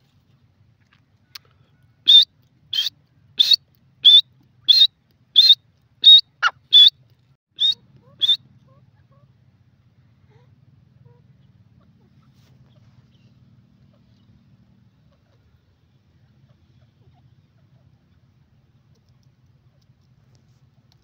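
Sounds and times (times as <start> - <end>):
bird calling with whistled notes: 2.0 - 7.0, 7.6 - 8.4.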